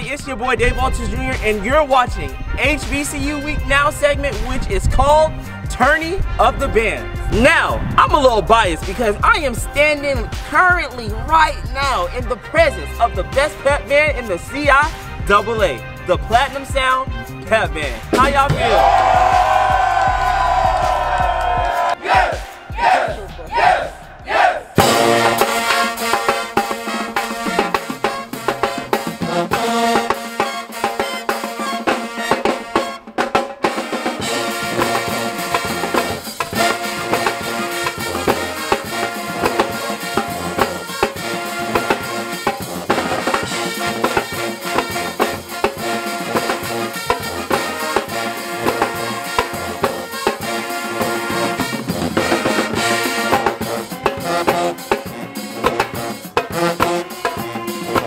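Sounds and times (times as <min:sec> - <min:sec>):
pep band playing: 0:00.0 - 0:58.0.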